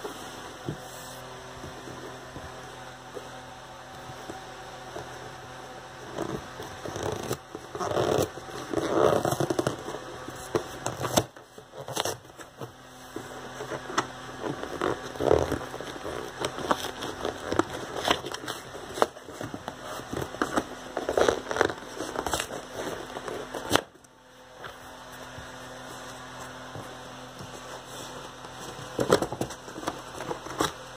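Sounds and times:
faint steady hum: 0.0s - 30.9s
cardboard flaps crackling: 13.2s - 30.9s.

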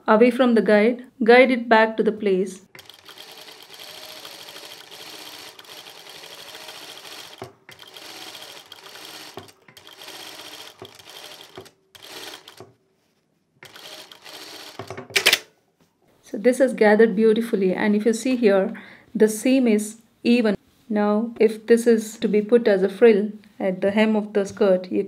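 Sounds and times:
sewing machine running: 2.7s - 12.8s, 13.6s - 15.4s.

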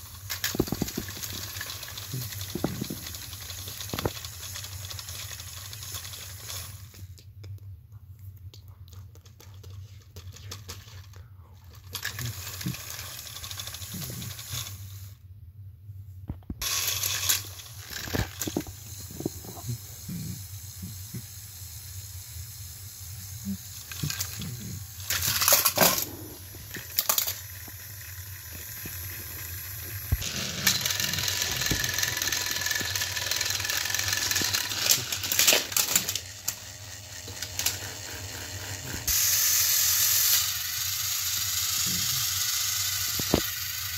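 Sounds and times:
plastic toy trains clattering: 0.0s - 7.0s, 9.8s - 15.1s, 16.6s - 19.8s, 23.3s - 43.9s
steady hiss: 16.6s - 36.6s.

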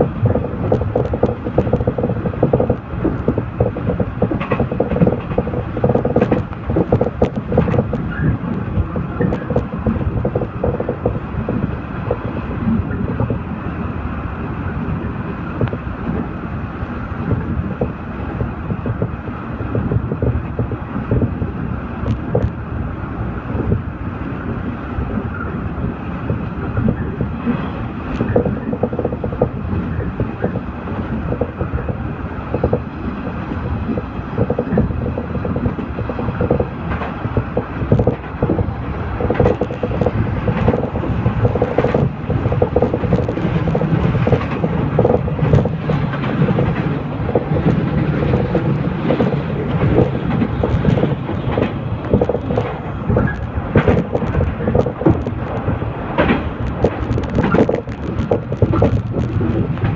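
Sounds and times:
train wheels rumbling on rails: 0.0s - 59.9s
carriage rattles and clicks: 0.2s - 12.3s, 28.1s - 59.9s.

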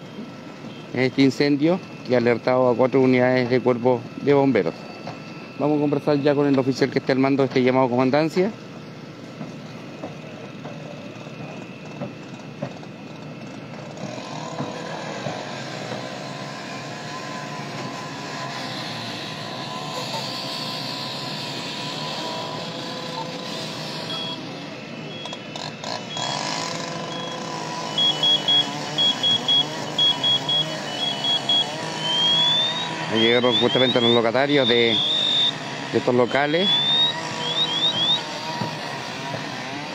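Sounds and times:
vehicle engine running: 8.6s - 39.9s
rapid electronic beeping: 24.0s - 24.4s, 26.1s - 38.2s.

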